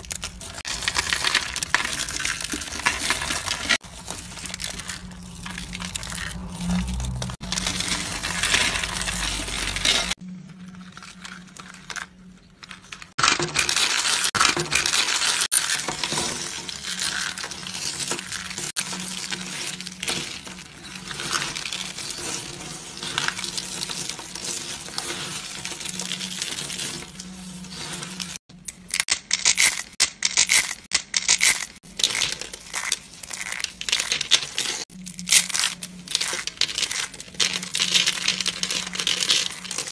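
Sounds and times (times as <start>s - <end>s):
hands crunching dry soap shavings: 0.0s - 10.2s, 30.4s - 39.9s.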